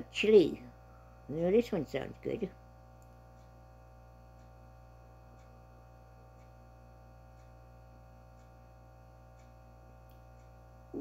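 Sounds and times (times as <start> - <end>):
low electrical hum: 0.0 - 11.0
faint ticks: 3.0 - 3.6, 4.3 - 4.6, 5.3 - 5.6, 6.2 - 10.6.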